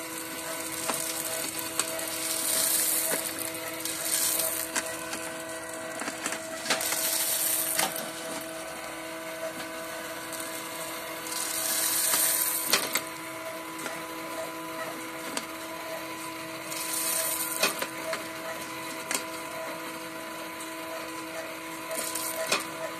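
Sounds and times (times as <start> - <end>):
coffee beans clicking and rattling: 0.0 - 5.4, 6.0 - 8.5, 10.2 - 13.1, 16.7 - 18.2, 21.9 - 22.7
motor humming: 0.0 - 22.9
rushing hiss of beans in chute: 0.7 - 4.7, 6.8 - 8.0, 11.2 - 12.7, 16.7 - 17.6.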